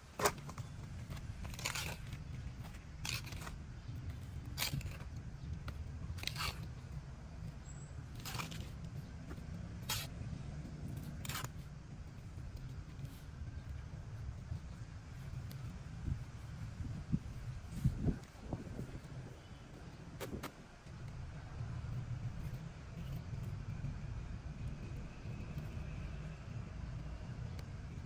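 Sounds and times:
steady low rumble: 0.0s - 28.0s
trowel scraping dry soil: 0.2s - 7.0s, 7.6s - 13.3s, 15.4s - 19.6s.

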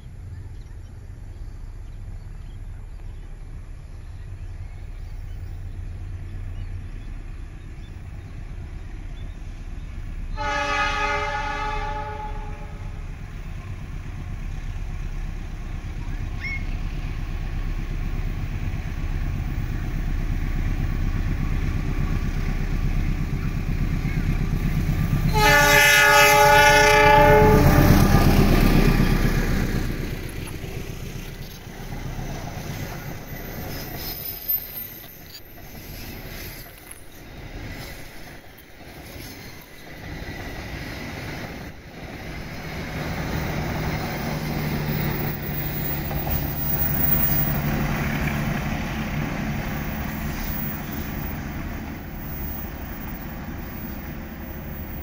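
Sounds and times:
locomotive engine rumble: 0.0s - 55.0s
train wheels on rails: 0.0s - 55.0s
locomotive horn blasts: 10.4s - 13.0s, 25.2s - 28.2s.

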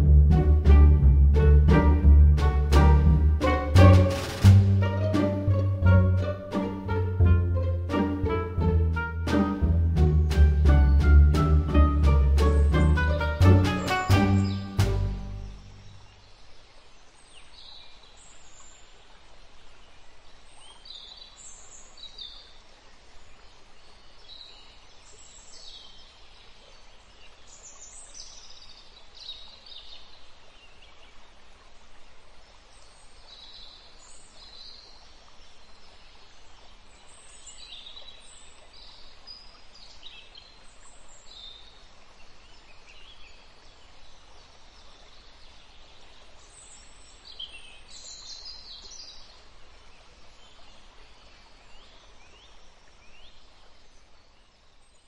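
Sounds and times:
birds chirping: 0.0s - 16.3s
running water rushing: 0.0s - 54.8s.

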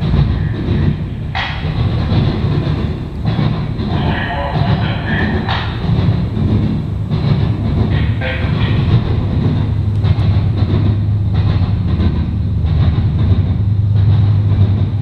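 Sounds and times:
train wheels rumbling on rails: 0.0s - 15.0s
wheels clacking over rail joints: 0.0s - 15.0s.

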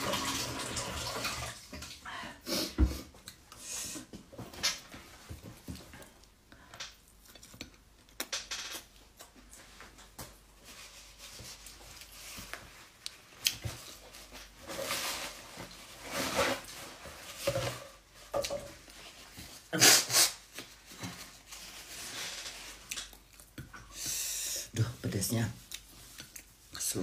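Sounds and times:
person chewing: 6.0s - 9.4s, 22.8s - 24.1s, 25.6s - 26.7s.

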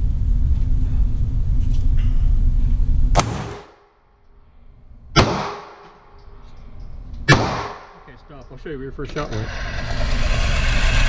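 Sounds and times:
low rumble: 0.0s - 3.6s
pistol shots echoing: 3.2s - 3.8s, 5.2s - 5.9s, 7.3s - 8.0s.

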